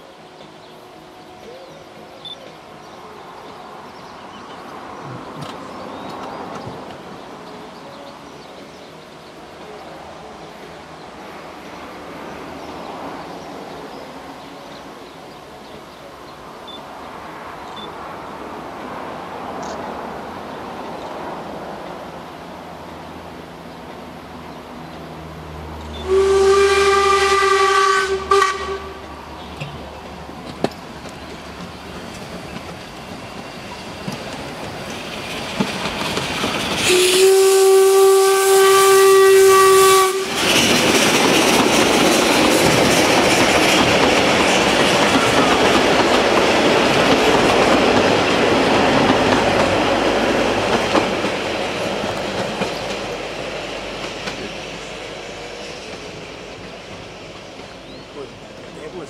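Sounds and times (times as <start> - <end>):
train wheels on rail: 0.0 - 59.0
steam whistle blasts: 26.0 - 29.0, 36.8 - 40.5.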